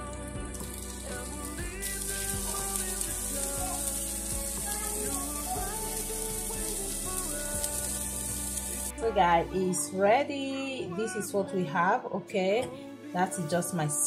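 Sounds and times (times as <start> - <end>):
background music: 0.0 - 14.0
patties sizzling in grill pan: 0.4 - 8.9.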